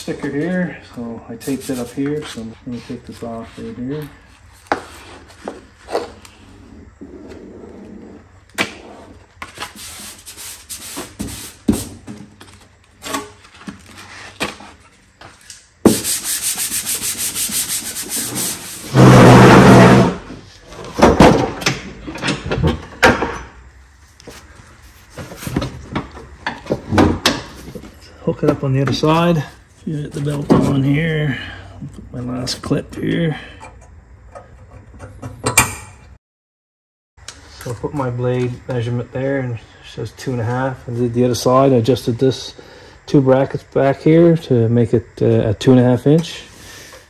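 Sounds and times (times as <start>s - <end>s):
steady hiss: 0.2s - 3.8s, 9.6s - 12.1s, 15.8s - 18.9s
loud blast of noise: 18.9s - 20.3s.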